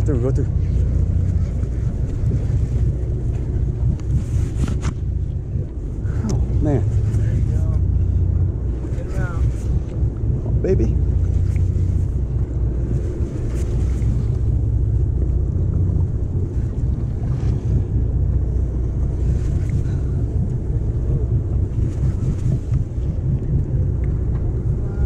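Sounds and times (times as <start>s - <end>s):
boat engine rumble: 0.0s - 25.0s
wind buffeting microphone: 0.0s - 25.0s.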